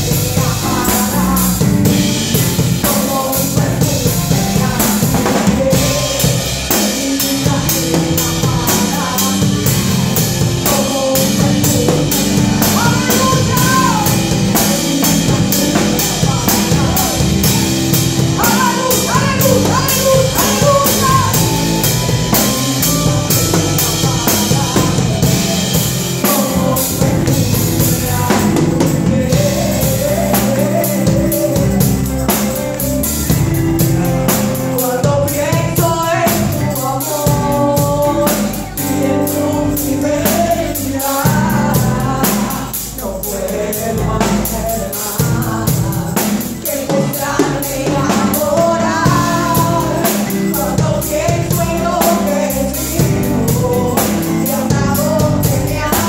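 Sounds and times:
woman singing into a microphone: 0.0s - 32.6s, 33.8s - 56.0s
drum kit beat: 0.0s - 56.0s.

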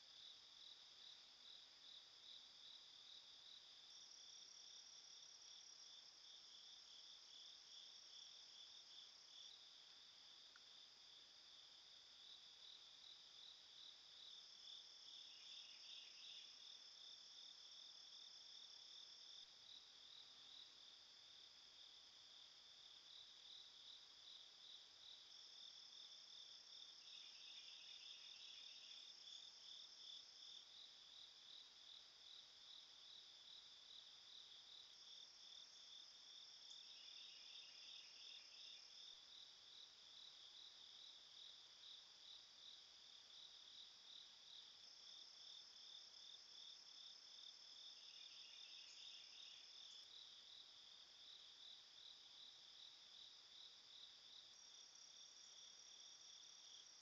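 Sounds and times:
high continuous insect buzz: 0.0s - 57.0s
crickets trilling: 25.9s - 30.6s, 46.0s - 50.2s.

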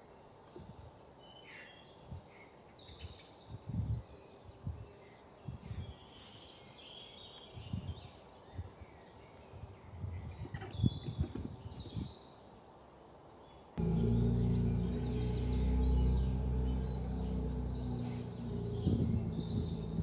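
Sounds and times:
birds chirping: 13.8s - 20.0s.

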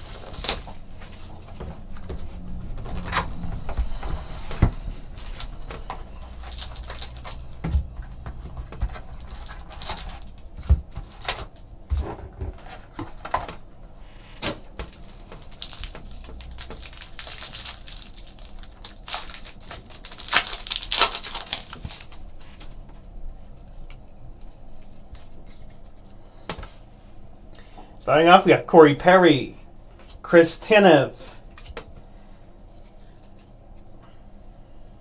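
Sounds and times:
foil wrapper crinkling tear: 0.0s - 1.6s, 5.0s - 7.6s, 9.0s - 11.6s, 14.4s - 22.7s.

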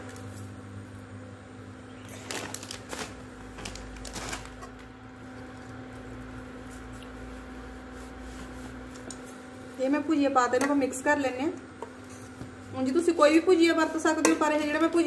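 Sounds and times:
steady low hum: 0.0s - 15.0s
plastic packet crinkling: 2.0s - 4.8s.

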